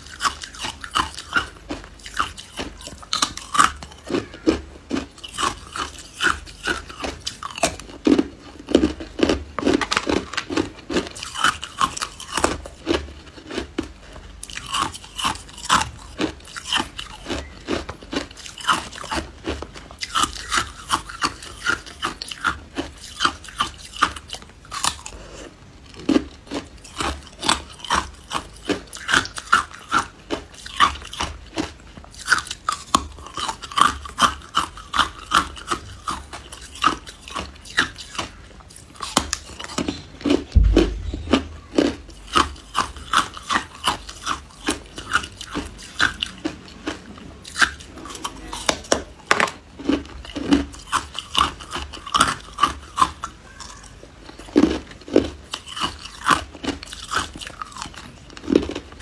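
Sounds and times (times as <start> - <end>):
ice cubes being chewed: 0.0 - 59.0.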